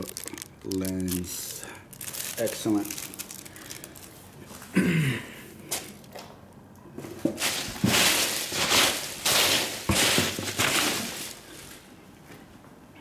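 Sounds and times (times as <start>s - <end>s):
hands rustling foam packing peanuts: 0.0s - 4.7s, 7.2s - 11.9s.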